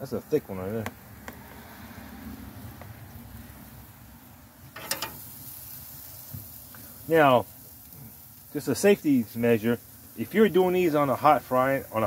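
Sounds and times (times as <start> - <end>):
metal tongs clattering on grill grate: 4.7 - 5.4.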